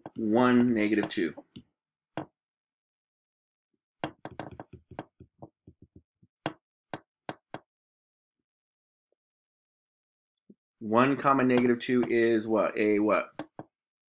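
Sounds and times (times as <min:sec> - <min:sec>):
stylus tapping on tablet screen: 0:04.0 - 0:06.6.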